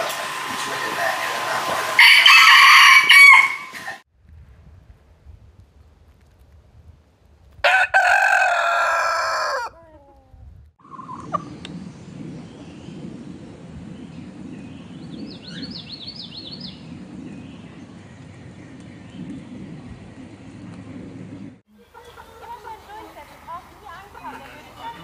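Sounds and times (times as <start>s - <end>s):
rooster crowing: 2.0s - 4.0s, 7.6s - 9.9s.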